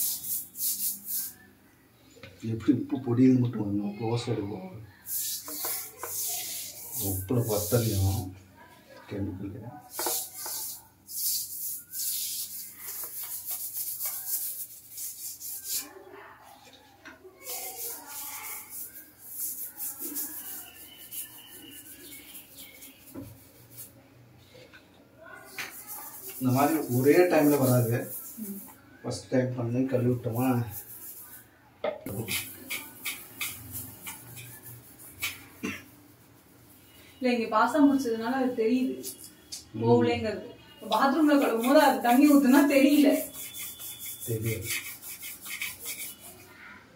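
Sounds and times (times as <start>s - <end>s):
gritty rubbing on countertop: 0.0s - 1.5s, 5.0s - 8.4s, 9.8s - 16.8s, 17.4s - 24.7s, 25.4s - 28.8s, 29.7s - 37.0s, 37.8s - 39.5s, 40.8s - 46.6s
steel wool scrubbing: 5.1s - 8.2s, 9.9s - 16.0s, 17.4s - 24.0s, 25.6s - 28.8s, 32.1s - 35.6s, 40.8s - 46.5s.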